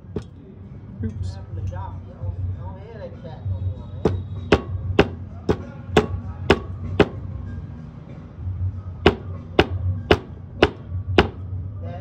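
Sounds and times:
hammer blows on metal: 4.0 - 7.3, 9.0 - 11.5.

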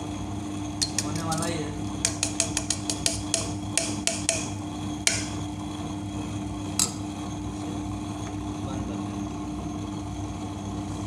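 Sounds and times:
spoon clinking on steel drum: 0.8 - 4.4.

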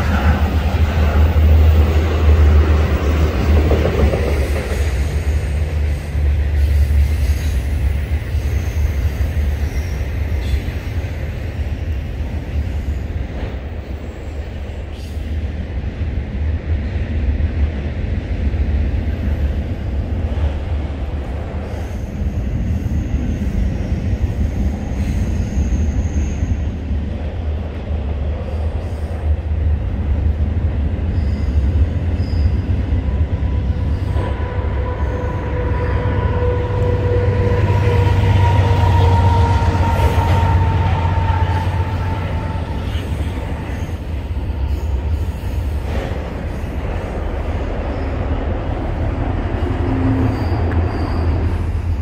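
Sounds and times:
train rumbling: 0.0 - 52.0
faint high squeal: 6.7 - 11.2, 21.6 - 26.8, 31.1 - 45.8, 49.6 - 52.0.

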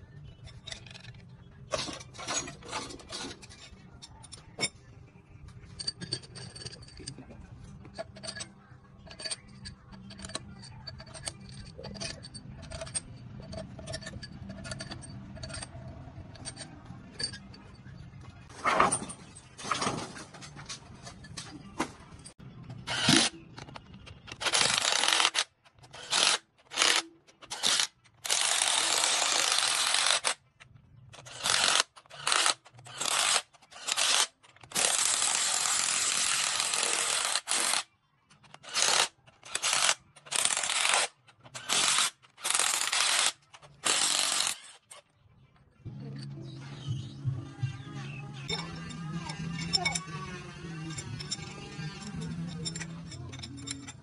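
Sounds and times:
metal tools clinking: 0.4 - 4.8, 5.5 - 22.4, 48.4 - 54.0.

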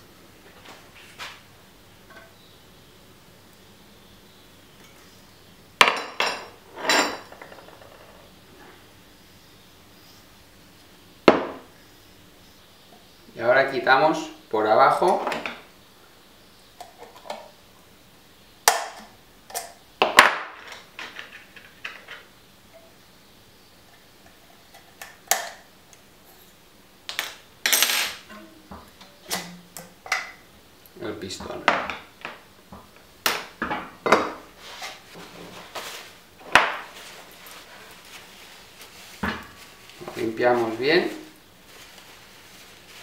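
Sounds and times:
metal tools knocking on workbench: 5.8 - 8.2
paper towel rustling: 34.6 - 43.0.

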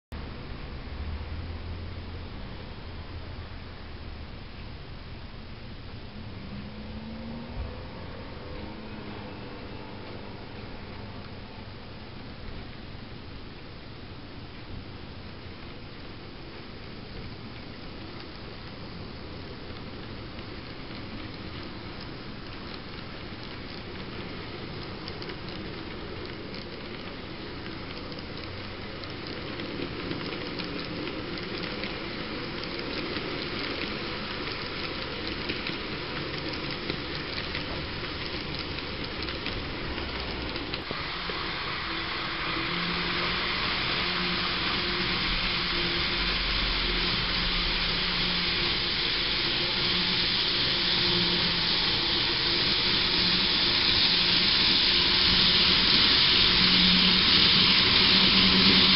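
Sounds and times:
model train wheels rattling: 16.4 - 58.9.

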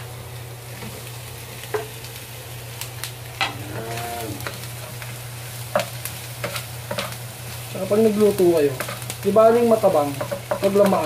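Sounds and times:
shrimp and onions sizzling in oil: 0.0 - 11.0
wooden spatula knocking against pan: 10.1 - 10.9.

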